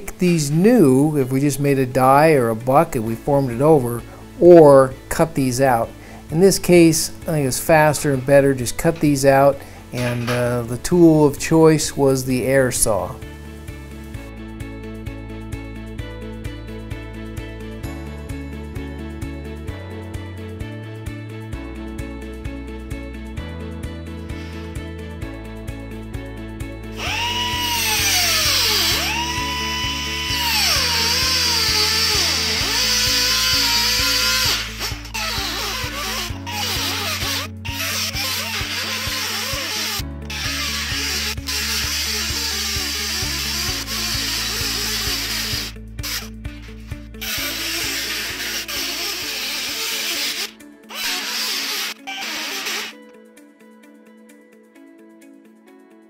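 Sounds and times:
background music with steady beat: 0.0s - 56.0s
air saw whining through steel: 26.9s - 46.3s, 47.2s - 53.0s.

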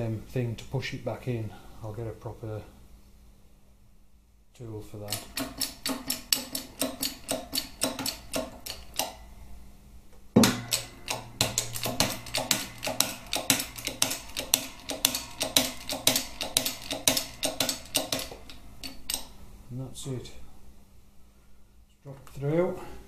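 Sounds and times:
sharp metallic clicks: 5.0s - 9.2s, 10.4s - 19.4s
loud knock: 10.4s - 14.1s.

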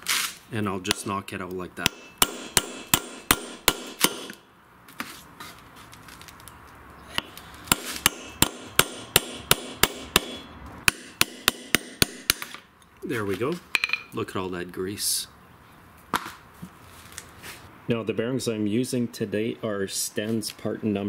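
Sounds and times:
hammer striking metal punch: 0.8s - 1.2s, 1.8s - 4.4s, 7.2s - 12.6s.

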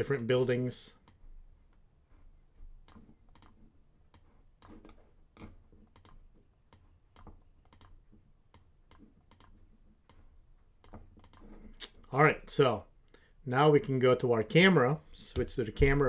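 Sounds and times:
mouse and keyboard clicks: 2.8s - 10.2s, 10.8s - 11.6s.

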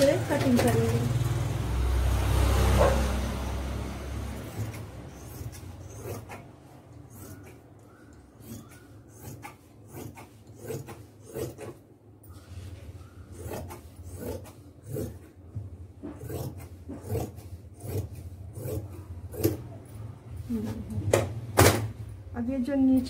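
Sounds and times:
scissors snipping cloth: 4.4s - 11.8s.

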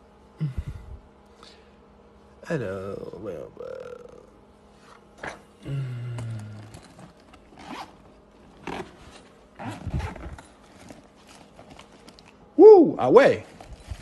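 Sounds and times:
zipper pulled open: 6.4s - 10.5s.

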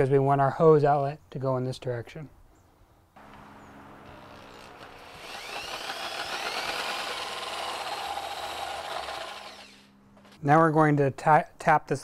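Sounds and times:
electric drill boring through plastic: 4.1s - 9.8s.

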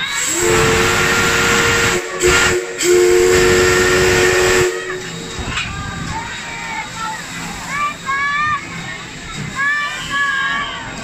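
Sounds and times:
steam hissing: 0.0s - 11.0s
steam whistle blasts: 0.2s - 5.4s.

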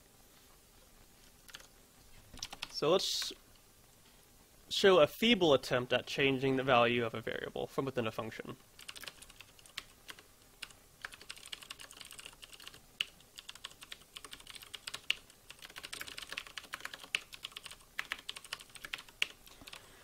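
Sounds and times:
keyboard typing: 1.4s - 1.7s, 2.4s - 2.8s, 8.8s - 19.9s.

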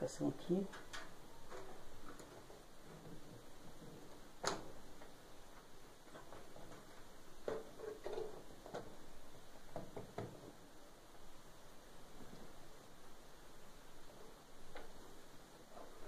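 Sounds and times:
wires and connectors rattling: 0.6s - 9.1s.

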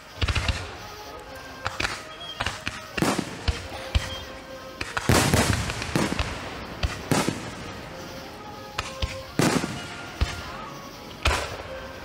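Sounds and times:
fireworks bangs: 0.0s - 1.0s, 1.6s - 12.0s
fireworks booms: 0.1s - 0.8s, 1.6s - 4.2s, 4.8s - 8.0s, 8.8s - 11.8s.

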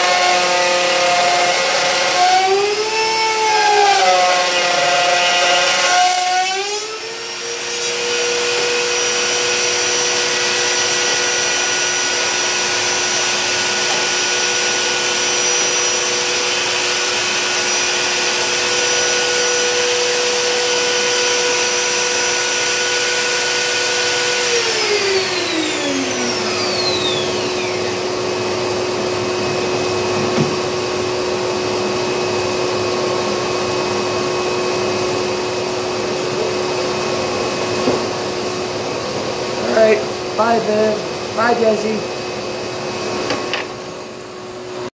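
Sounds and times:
router motor running: 0.0s - 38.2s
vacuum running: 0.0s - 44.9s.

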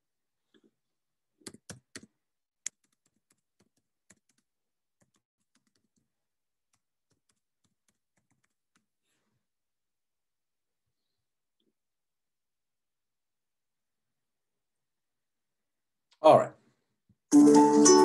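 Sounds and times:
typing on computer keyboard: 1.4s - 6.1s, 6.7s - 8.9s.

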